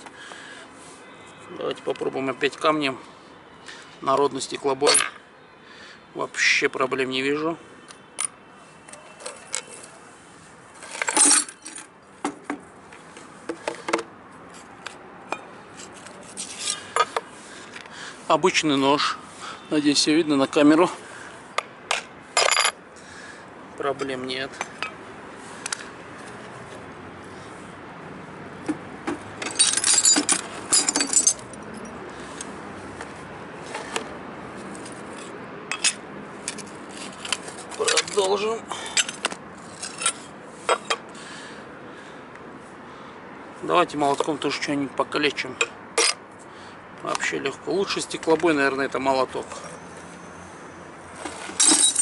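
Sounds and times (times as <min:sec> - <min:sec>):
glass shards clattering: 0:10.9 - 0:11.8, 0:29.4 - 0:31.5, 0:51.6 - 0:52.0
glass pieces clinking: 0:10.9 - 0:11.9, 0:29.4 - 0:31.5, 0:51.6 - 0:52.0
broken glass clinking: 0:51.6 - 0:52.0.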